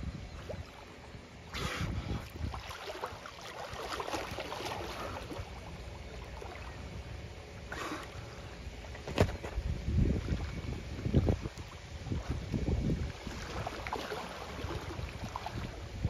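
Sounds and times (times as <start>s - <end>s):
water sloshing and splashing: 0.3s - 16.0s
dolphin blowing puffs: 1.5s - 2.3s, 7.7s - 8.5s.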